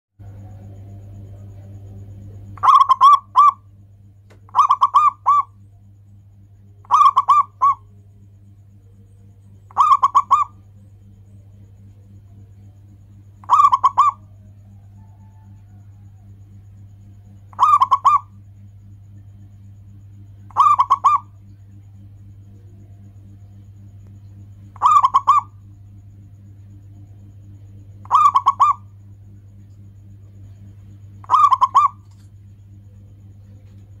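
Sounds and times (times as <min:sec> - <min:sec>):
steady low hum: 0:00.2 - 0:34.0
dove cooing: 0:02.2 - 0:03.7, 0:04.4 - 0:05.6, 0:06.6 - 0:08.0, 0:09.6 - 0:12.5, 0:13.3 - 0:18.5, 0:20.4 - 0:21.8, 0:22.5 - 0:26.0, 0:27.2 - 0:29.4, 0:30.3 - 0:32.2.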